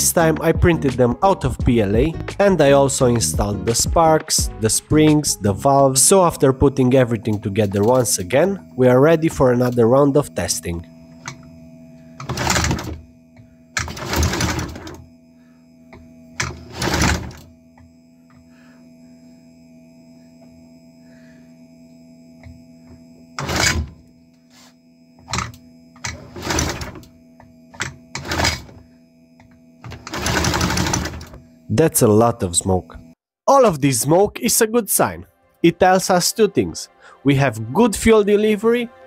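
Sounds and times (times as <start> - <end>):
steady hum: 0.0 - 39.0
engine cranking: 12.2 - 15.0, 16.4 - 17.7, 25.3 - 28.8, 29.4 - 31.7.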